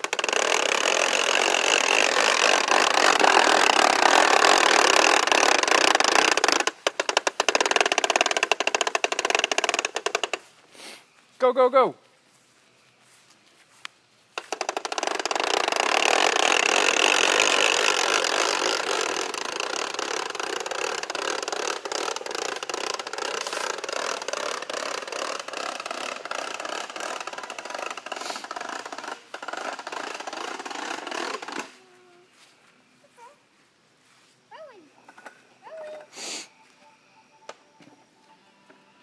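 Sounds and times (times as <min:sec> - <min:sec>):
toy lawnmower rattling: 0:00.0 - 0:10.5, 0:14.4 - 0:31.9.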